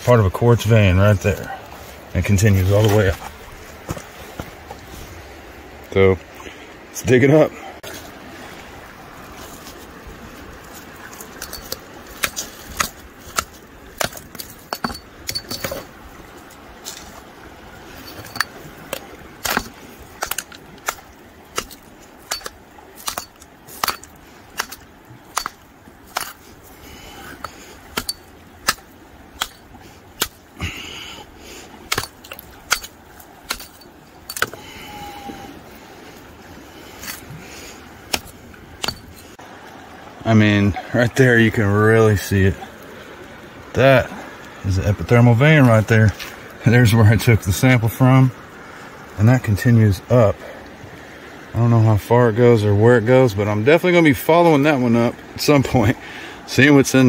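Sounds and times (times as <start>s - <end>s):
hammer striking rock: 11.4s - 15.9s, 18.2s - 26.4s, 27.4s - 30.4s, 31.9s - 34.6s, 38.1s - 39.2s.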